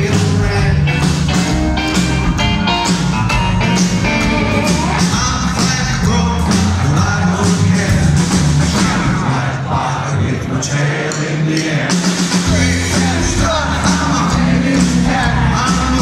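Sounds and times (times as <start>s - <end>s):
electric guitar: 0.0s - 7.6s
slapped upright bass: 0.0s - 9.2s, 12.4s - 16.0s
drums: 0.0s - 16.0s
person singing: 11.1s - 16.0s.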